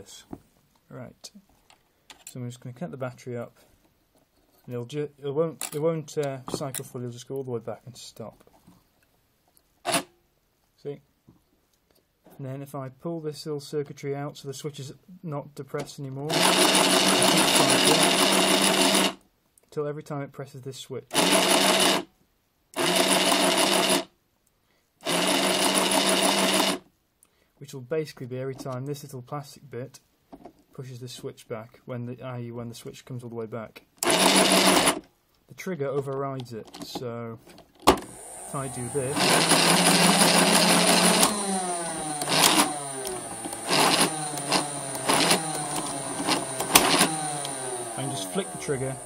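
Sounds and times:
toy blaster motor whirring: 0:09.9 - 0:10.1, 0:16.3 - 0:19.2, 0:21.1 - 0:22.1, 0:22.8 - 0:24.1, 0:25.0 - 0:26.8, 0:34.0 - 0:35.0, 0:38.0 - 0:49.0
clicking rattling mechanism: 0:39.1 - 0:47.8.

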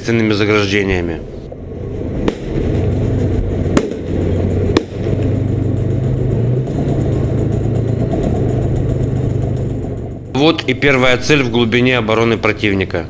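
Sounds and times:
tank engine droning: 0:00.0 - 0:13.0
sharp cracks: 0:02.2 - 0:11.6.

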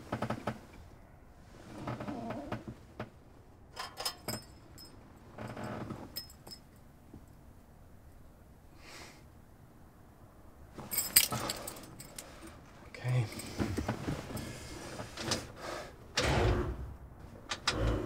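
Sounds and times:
metallic clinks and jingles: 0:03.8 - 0:06.8, 0:10.8 - 0:13.6
soft rustles: 0:10.7 - 0:15.6.

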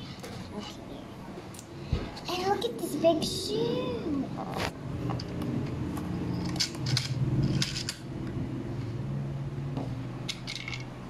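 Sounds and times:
plastic toys clicking and tapping: 0:06.4 - 0:08.0, 0:10.3 - 0:10.9.

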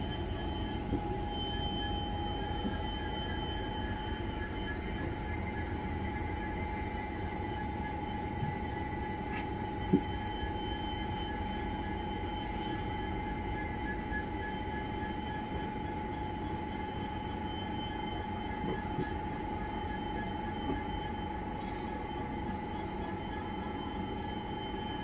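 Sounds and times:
high whine: 0:00.0 - 0:13.9.

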